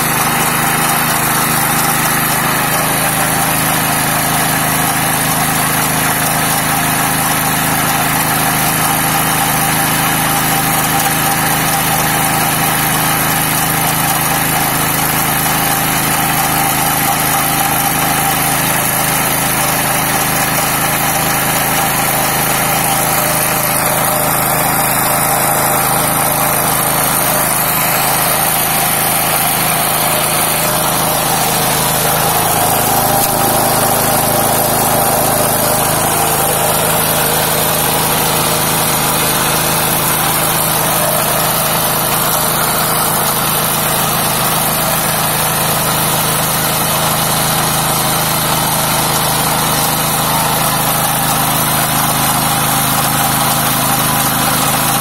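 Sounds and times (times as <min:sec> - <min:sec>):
grinder milling: 0:00.0 - 0:55.0
small engine running: 0:00.0 - 0:55.0.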